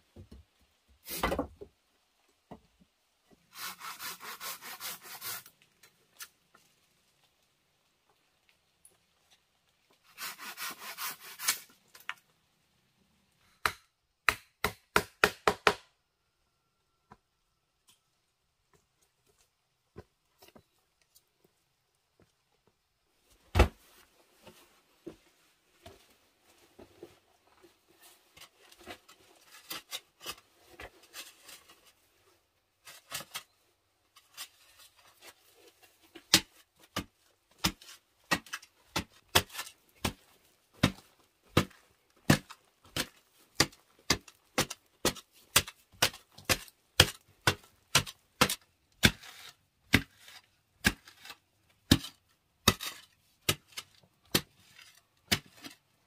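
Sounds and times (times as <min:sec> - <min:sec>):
digging tool striking clay: 0:36.3 - 0:40.2, 0:40.8 - 0:49.3, 0:49.9 - 0:54.5, 0:55.3 - 0:55.6
light scraping on soil: 0:49.1 - 0:51.5.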